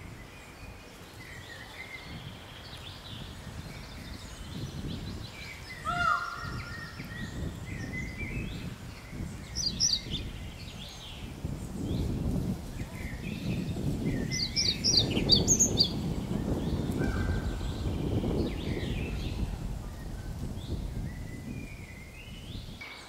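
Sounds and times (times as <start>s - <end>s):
birds singing and calling: 0.0s - 23.0s.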